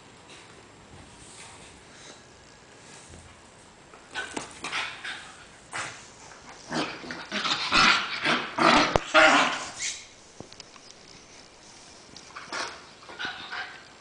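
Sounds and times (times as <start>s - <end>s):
dogs play-fighting vocalizing: 4.1s - 10.0s, 12.3s - 14.0s.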